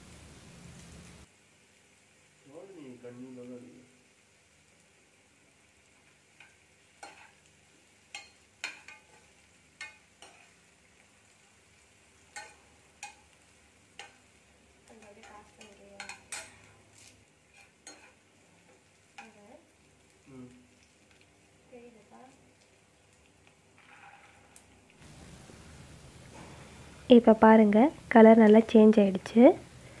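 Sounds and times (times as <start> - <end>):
faint frying sizzle: 0.0 - 30.0
spatula scraping a pan: 6.3 - 7.5, 8.1 - 10.6, 12.3 - 13.3, 15.0 - 19.4, 23.8 - 24.6.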